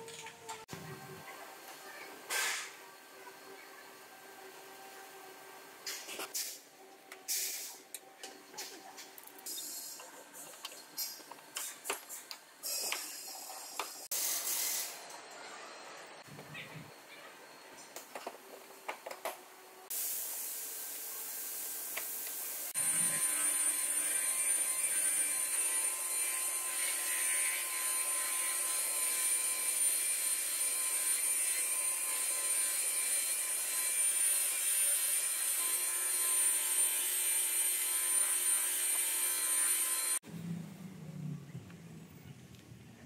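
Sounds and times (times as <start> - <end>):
hiss: 2.3 - 2.8, 7.3 - 7.8, 12.6 - 15.0, 19.9 - 22.8
rotary polisher whining: 22.0 - 40.2.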